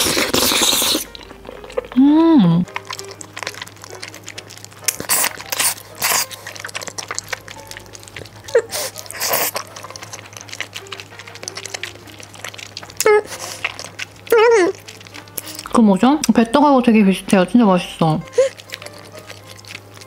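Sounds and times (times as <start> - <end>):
small wet mouth clicks: 0.0 - 2.0
loud mouthfuls eating: 0.0 - 15.8, 18.2 - 20.0
quiet chewing: 0.0 - 16.6, 18.2 - 20.0.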